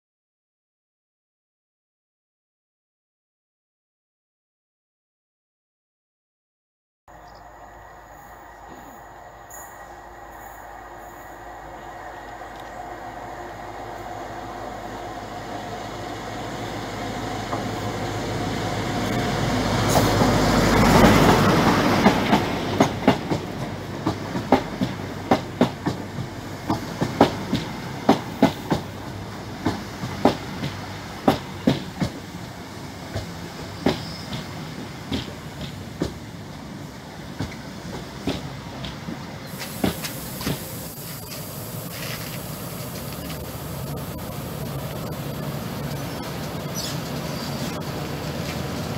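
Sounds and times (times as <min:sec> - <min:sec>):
diesel train passing: 0:07.1 - 0:48.9
train wheels clicking over track joints: 0:16.5 - 0:48.9.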